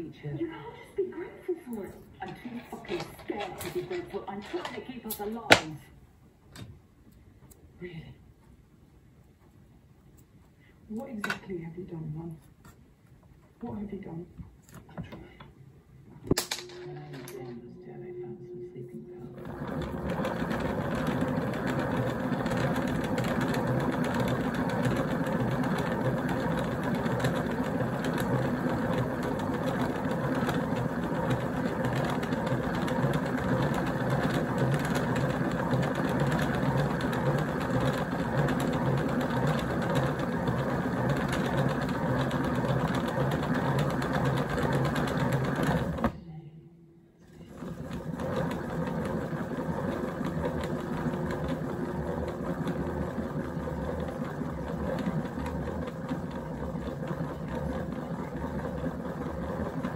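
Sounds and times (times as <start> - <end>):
small machine whirring: 2.0 - 5.6, 16.3 - 46.2, 47.3 - 59.9.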